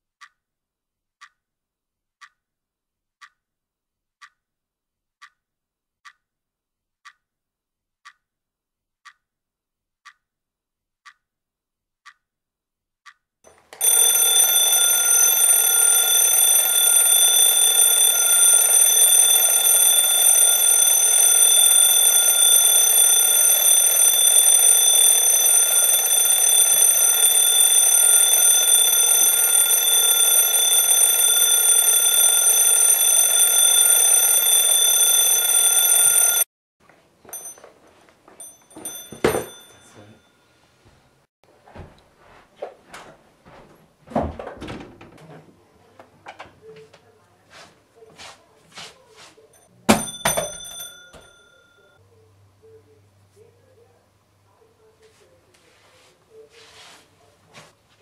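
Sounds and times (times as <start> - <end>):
alarm clock ticking: 13.1 - 36.5, 49.5 - 52.0
alarm clock ringing: 13.7 - 36.5, 37.3 - 37.7, 38.4 - 40.4, 49.6 - 52.0.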